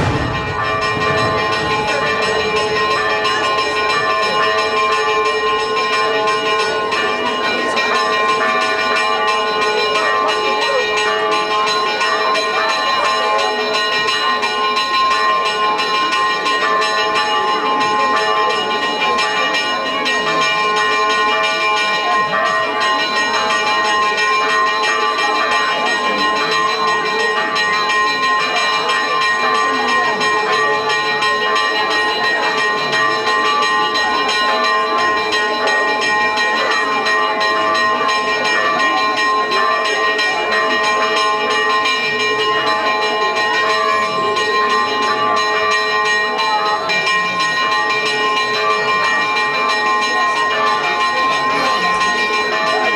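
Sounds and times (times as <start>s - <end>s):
church bells ringing: 0.0s - 52.9s
voices: 0.0s - 52.9s.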